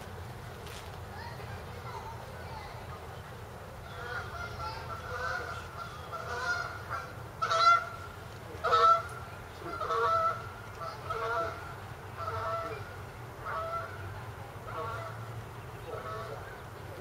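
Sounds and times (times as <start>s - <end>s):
geese honking: 3.9s - 15.2s, 15.8s - 17.0s.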